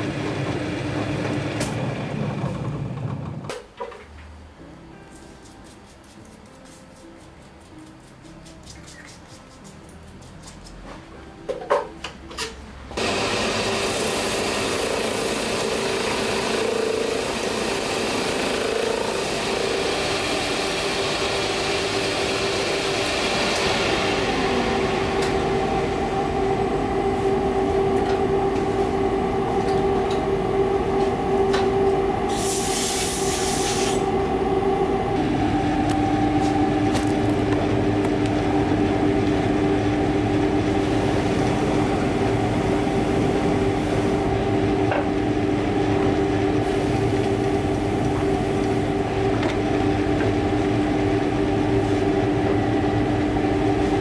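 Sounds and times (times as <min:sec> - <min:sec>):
finishing machine humming: 0:13.0 - 0:54.0
brief high hiss: 0:32.3 - 0:34.0.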